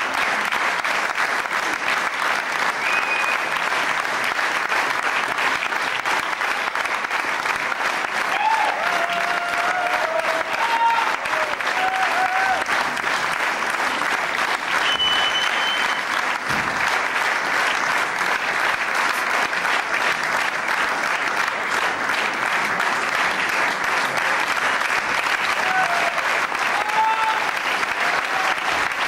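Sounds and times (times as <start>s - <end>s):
audience applauding: 0.0s - 29.0s
short high whistle: 2.8s - 3.4s, 14.8s - 16.0s.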